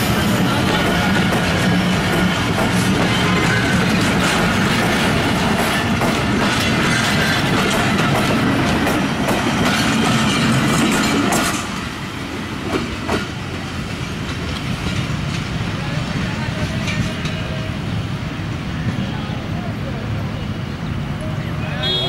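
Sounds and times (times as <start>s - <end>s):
train wheel noise: 0.0s - 22.0s
clattering clicks over rail joints: 0.6s - 11.8s.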